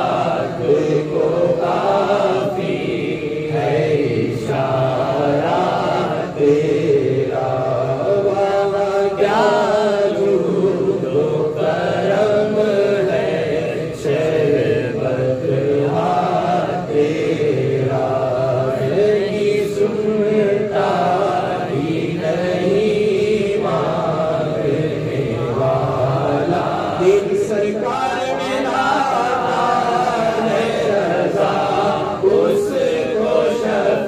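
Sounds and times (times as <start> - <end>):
man singing into a microphone: 0.0 - 34.0.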